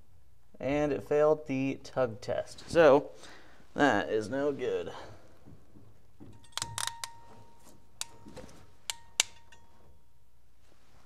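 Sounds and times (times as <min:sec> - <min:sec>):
wire crimper clicking: 0:06.4 - 0:09.7.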